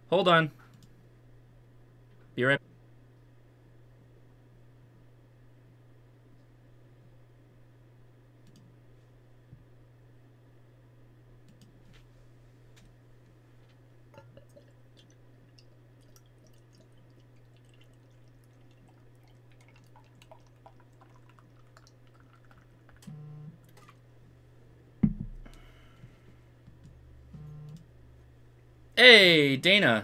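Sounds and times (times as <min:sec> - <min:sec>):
low electrical hum: 0:00.0 - 0:30.0.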